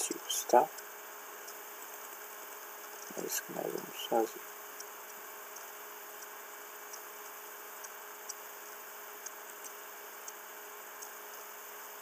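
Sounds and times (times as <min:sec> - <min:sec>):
microphone hiss: 0:00.0 - 0:05.7
faint electrical hum: 0:00.0 - 0:12.0.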